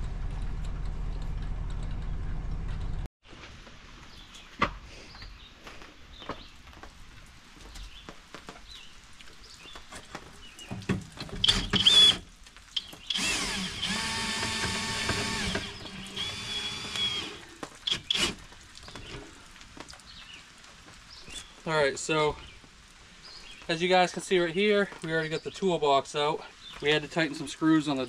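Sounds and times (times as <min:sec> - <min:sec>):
cordless drill spinning: 0:11.5 - 0:12.2, 0:13.1 - 0:18.4.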